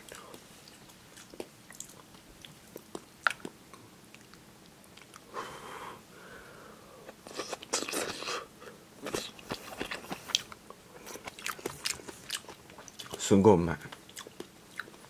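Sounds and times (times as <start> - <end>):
chewing and mouth sounds: 0.0 - 5.3, 7.1 - 8.4, 9.0 - 15.0.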